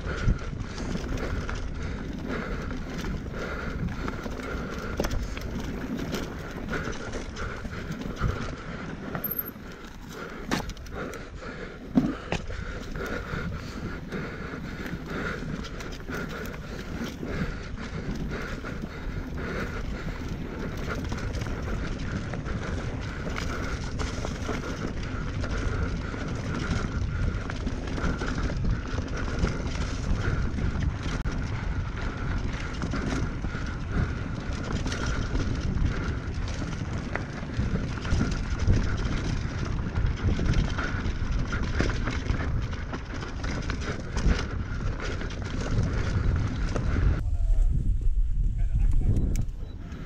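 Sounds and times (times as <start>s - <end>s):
bike rattling over rough ground: 0.0s - 50.0s
tyres on dirt: 0.1s - 47.2s
wind rushing: 45.8s - 49.6s.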